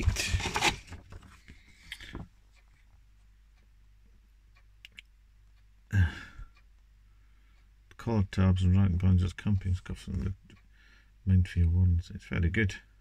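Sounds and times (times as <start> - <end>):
paper leaflets rustling: 0.0 - 1.5.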